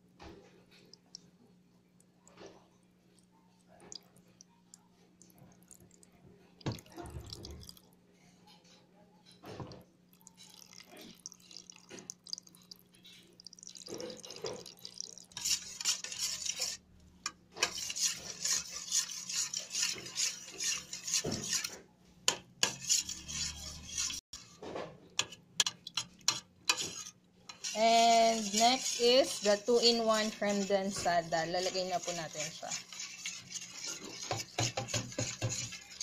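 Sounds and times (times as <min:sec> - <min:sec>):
spoon stirring in metal bowl: 0:09.6 - 0:36.0.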